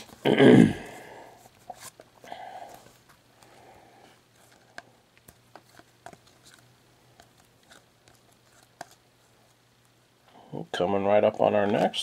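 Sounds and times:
trading cards rustling and clicking: 4.3s - 9.9s.

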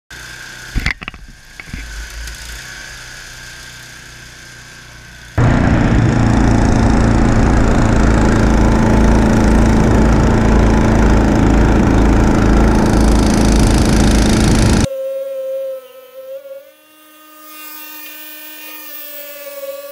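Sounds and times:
snowblower engine running: 0.2s - 14.9s.

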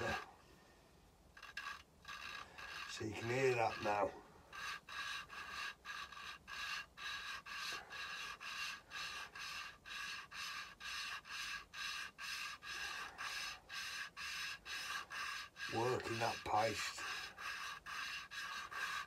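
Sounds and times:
grinding paste rasping on valve seat: 0.0s - 0.3s, 1.4s - 19.0s.

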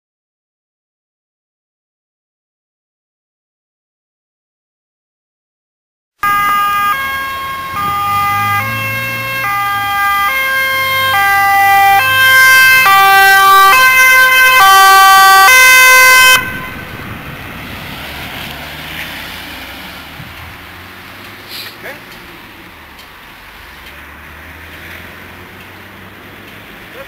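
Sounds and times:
two-tone ambulance siren: 6.2s - 18.3s
traffic noise: 6.2s - 27.0s
vehicle engine: 6.2s - 27.0s.

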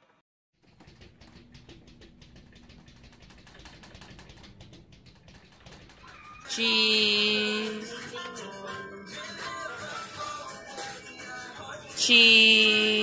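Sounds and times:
cat paws tapping on mirror: 0.6s - 6.4s.

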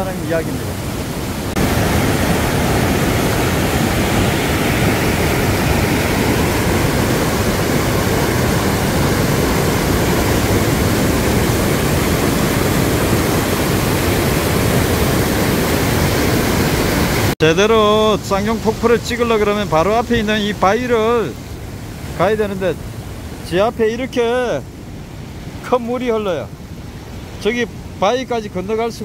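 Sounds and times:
stream rushing over boulders: 0.0s - 28.9s.

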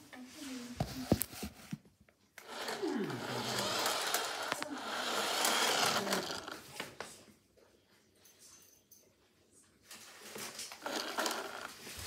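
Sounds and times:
toy car motor whirring: 2.4s - 6.6s, 10.8s - 11.8s.

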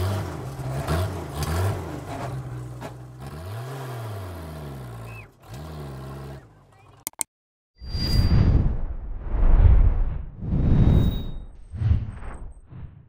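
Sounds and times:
vehicle engine revving: 0.0s - 7.0s.

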